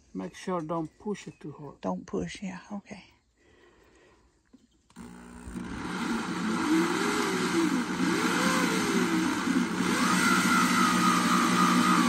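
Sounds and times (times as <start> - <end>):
electric drill with hole saw: 4.9 - 12.0.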